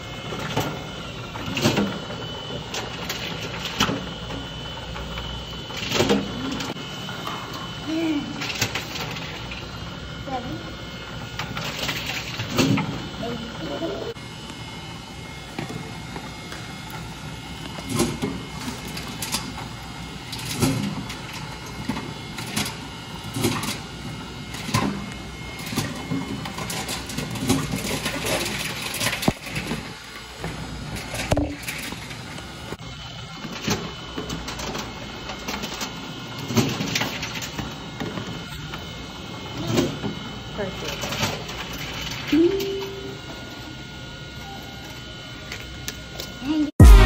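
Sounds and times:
vending machine intake hum: 41.5s - 47.0s.

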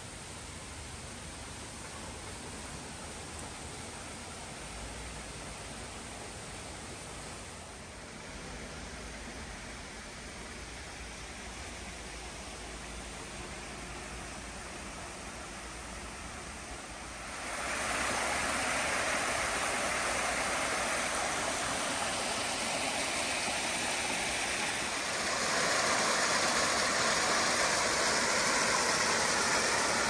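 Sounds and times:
waterfall rushing: 16.9s - 30.0s.

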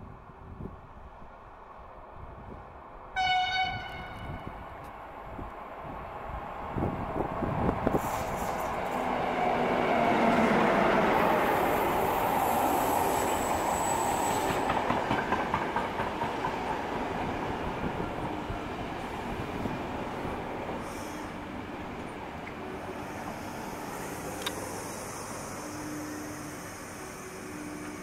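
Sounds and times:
train wheels clicking over rail joints: 14.3s - 17.0s.

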